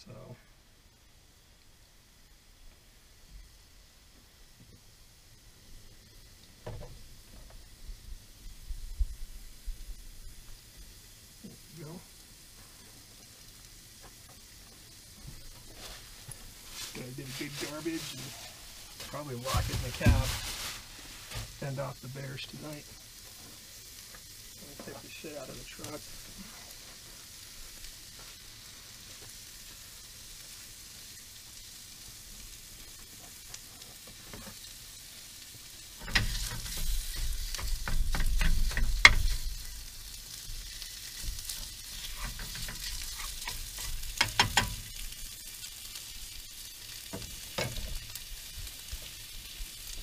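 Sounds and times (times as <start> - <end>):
sausage meat sizzling in a pan: 0.0 - 50.0
wooden spatula scraping pan: 41.5 - 44.7.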